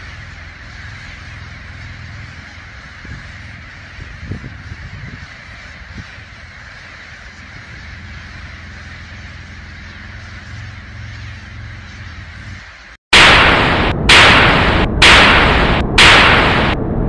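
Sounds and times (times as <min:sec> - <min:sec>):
flock of birds calling: 0:00.0 - 0:13.0.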